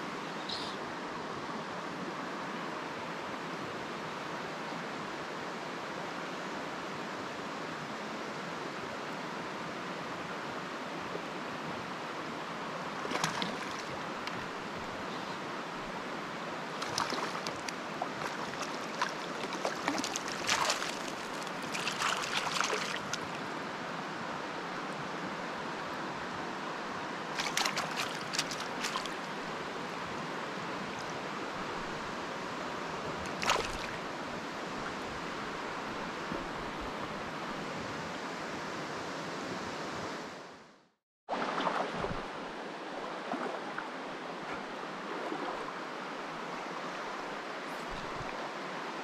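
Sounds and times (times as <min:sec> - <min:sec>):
river water rushing: 0:00.0 - 0:38.4
splashing in water: 0:13.0 - 0:14.4, 0:16.7 - 0:23.4, 0:27.4 - 0:29.4, 0:33.3 - 0:34.0.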